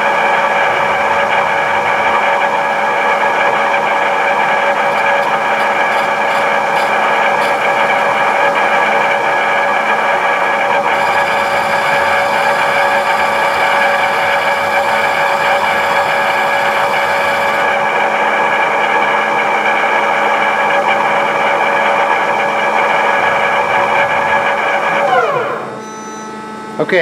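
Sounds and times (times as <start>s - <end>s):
lathe spindle gear whine: 0.0s - 27.0s.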